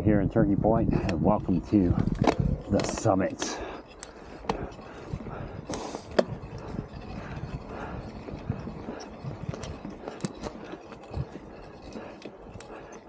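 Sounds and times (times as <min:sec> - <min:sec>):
bike tyres rumbling on dirt: 0:00.9 - 0:11.3
bike clattering over bumps: 0:01.9 - 0:12.9.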